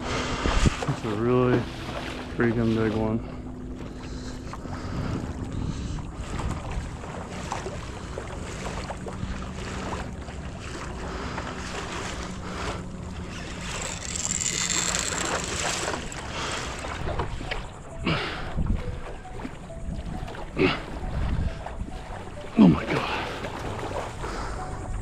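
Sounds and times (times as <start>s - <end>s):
wind buffeting microphone: 0.0s - 22.5s
water washing around hull: 0.0s - 25.0s
small clicks and knocks: 13.5s - 16.8s.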